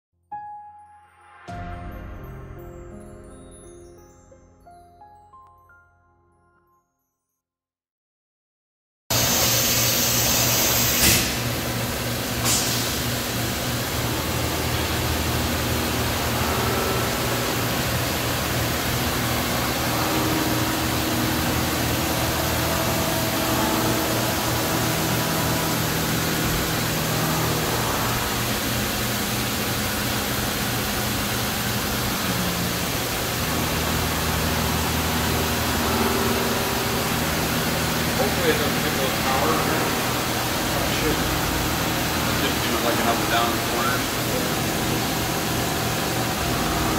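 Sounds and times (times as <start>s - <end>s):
machine-shop equipment hum: 9.1s - 46.9s.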